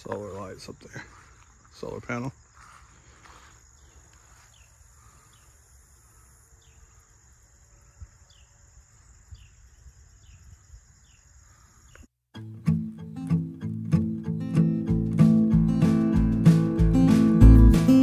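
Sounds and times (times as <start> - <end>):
insects trilling: 0.0 - 12.1.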